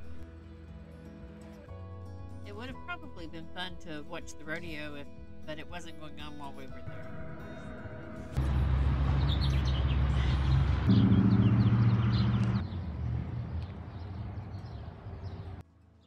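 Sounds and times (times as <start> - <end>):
vehicle engine humming: 7.2 - 15.6
birds chirping: 8.4 - 15.6.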